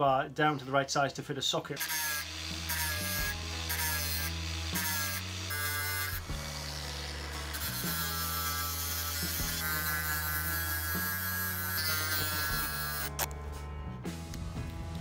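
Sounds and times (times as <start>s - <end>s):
angle grinder grinding steel: 1.8s - 13.3s
background music: 1.8s - 15.0s.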